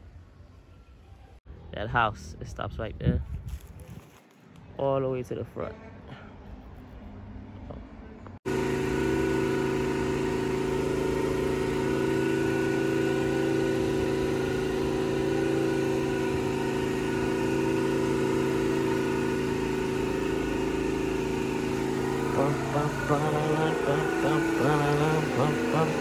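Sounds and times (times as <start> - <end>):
vehicle engine humming: 6.3 - 26.0.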